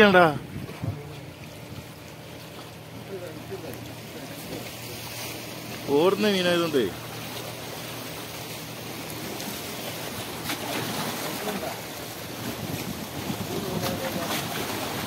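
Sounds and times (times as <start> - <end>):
waves splashing against rocks: 0.0 - 15.0
wind buffeting microphone: 0.4 - 2.0, 12.2 - 15.0.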